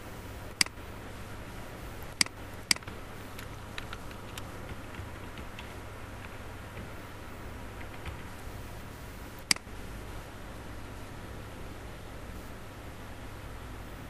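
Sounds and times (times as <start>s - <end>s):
steady low hum: 0.0s - 14.0s
computer mouse clicks: 2.0s - 6.9s, 9.4s - 9.7s.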